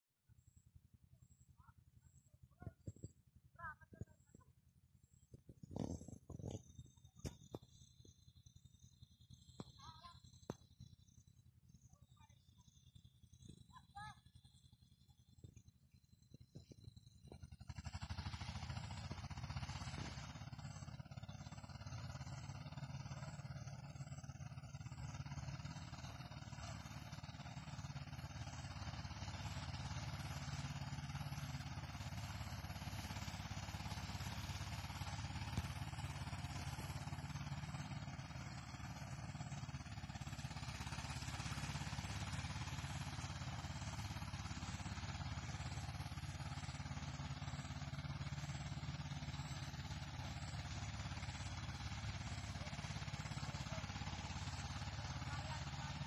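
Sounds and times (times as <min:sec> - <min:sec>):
threshing machine engine running: 0:05.3 - 0:56.0.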